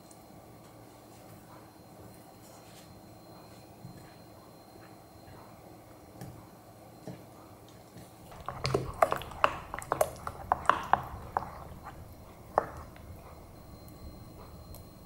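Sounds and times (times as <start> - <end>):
wooden spoon clinking glass bowl: 8.3 - 14.8
spoon stirring wet paste: 8.3 - 15.0.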